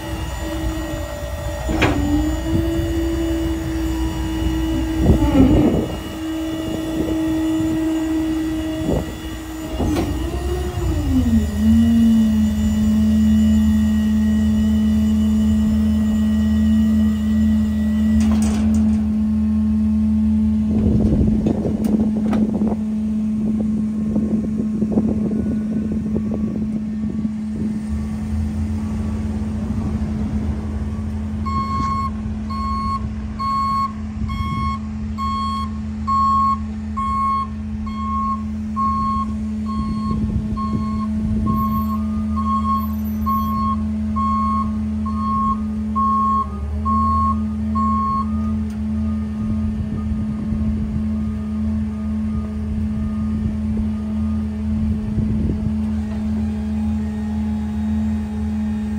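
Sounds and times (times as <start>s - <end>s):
reversing beeper: 0.0s - 20.7s, 31.4s - 54.9s
truck engine drone: 0.0s - 58.9s.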